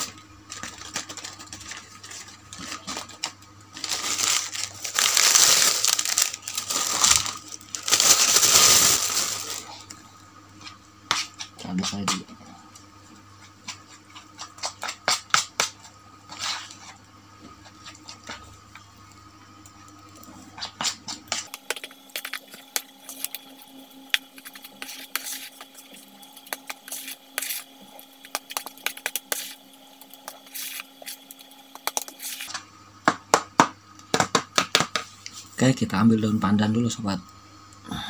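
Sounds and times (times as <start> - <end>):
squishing dough: 0.0 - 10.0, 10.6 - 18.8, 19.8 - 32.6
spoon scraping plastic bowl: 20.6 - 32.5.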